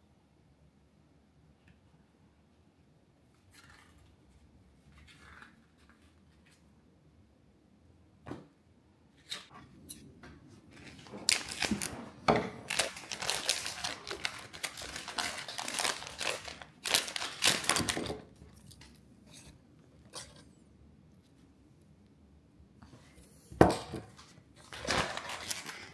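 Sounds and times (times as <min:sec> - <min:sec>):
foil wrapper crinkling: 0:10.8 - 0:12.0, 0:12.6 - 0:19.0, 0:24.6 - 0:25.9.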